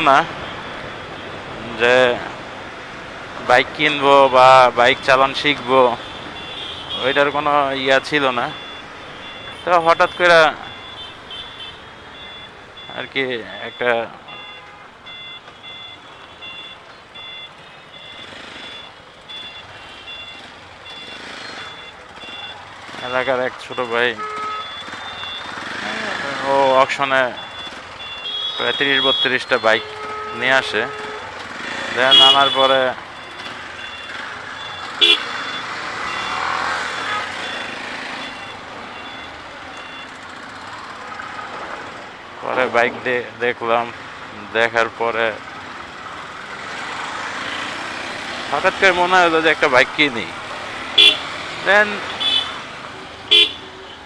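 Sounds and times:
road traffic noise: 0:00.0 - 0:54.0
vehicle horn toot: 0:24.2 - 0:24.8, 0:28.2 - 0:31.3, 0:32.0 - 0:32.8, 0:35.0 - 0:37.7, 0:51.0 - 0:51.3, 0:52.1 - 0:52.6, 0:53.3 - 0:53.7.

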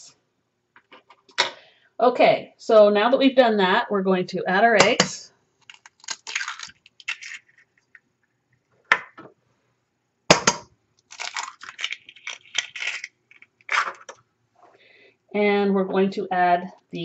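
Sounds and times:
eggshells crackling: 0:05.6 - 0:08.4, 0:11.0 - 0:14.2.

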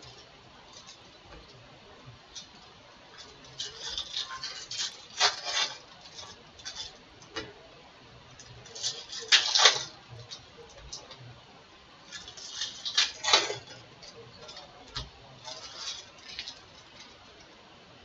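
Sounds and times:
foil wrappers crinkling and tearing: 0:03.2 - 0:07.5, 0:08.4 - 0:11.2, 0:12.1 - 0:17.5.

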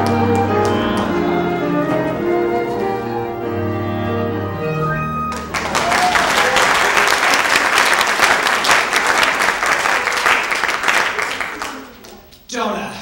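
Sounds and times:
audience applause: 0:00.0 - 0:03.2, 0:04.6 - 0:12.2
ensemble held note: 0:00.4 - 0:06.7.

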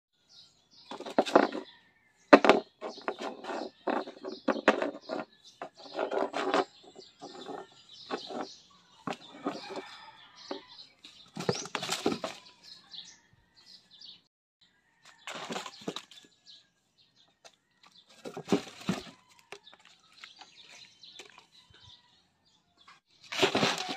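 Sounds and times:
kitten paws scraping on wood: 0:02.4 - 0:12.5, 0:18.0 - 0:21.6, 0:23.3 - 0:23.9
wrapper rustling: 0:23.3 - 0:23.9.

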